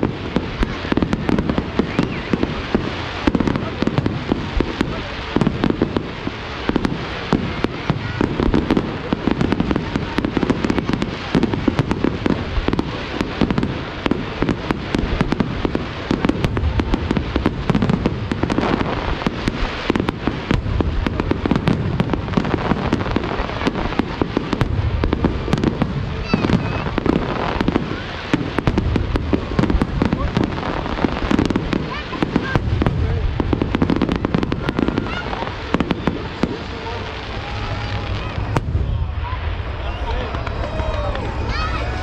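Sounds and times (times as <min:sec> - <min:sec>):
fireworks bangs and crackles: 0:00.0 - 0:42.0
low rumble: 0:36.7 - 0:42.0.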